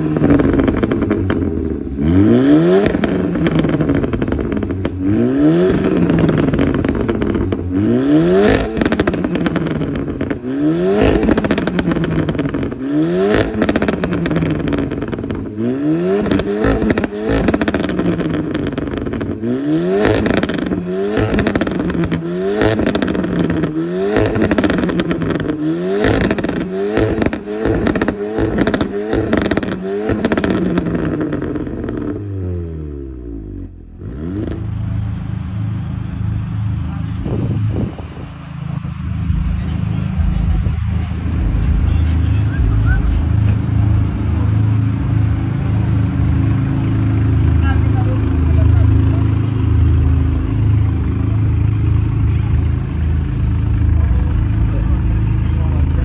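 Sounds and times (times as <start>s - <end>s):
car engine revving: 0.0s - 56.0s
exhaust crackles and pops: 5.7s - 7.7s, 8.5s - 15.5s, 16.2s - 19.4s, 20.0s - 32.2s.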